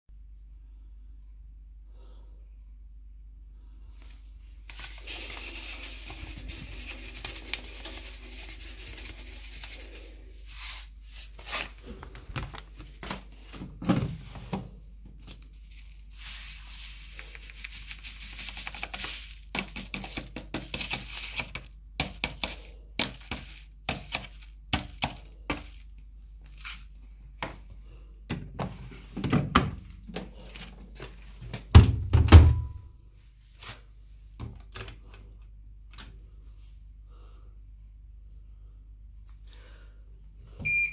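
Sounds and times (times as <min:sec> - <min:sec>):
paper packet crinkling: 0:04.7 - 0:13.4, 0:15.2 - 0:26.9.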